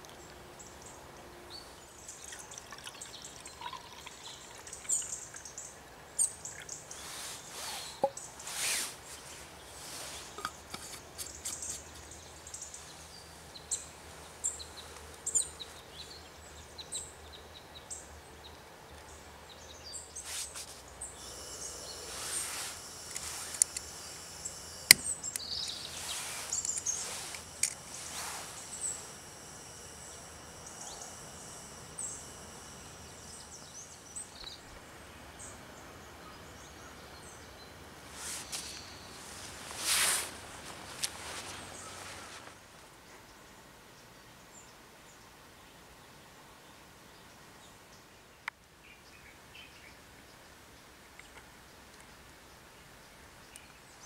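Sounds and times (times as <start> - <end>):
small birds chirping: 0.1 - 42.5
gas stove hissing: 20.2 - 34.8, 38.0 - 42.5.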